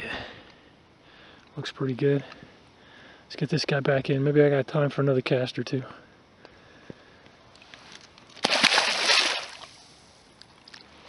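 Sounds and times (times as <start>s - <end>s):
fish splashing in water: 8.3s - 10.0s.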